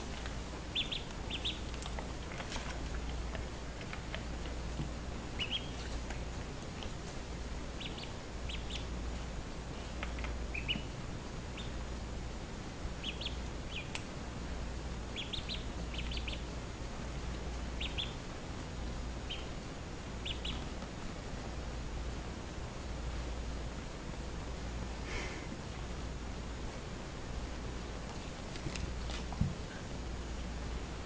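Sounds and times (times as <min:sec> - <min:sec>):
duckling peeping: 0:00.2 - 0:04.6, 0:05.2 - 0:07.1, 0:07.7 - 0:09.1, 0:10.0 - 0:11.9, 0:13.0 - 0:14.1, 0:15.0 - 0:16.6, 0:17.3 - 0:18.4, 0:19.1 - 0:20.8.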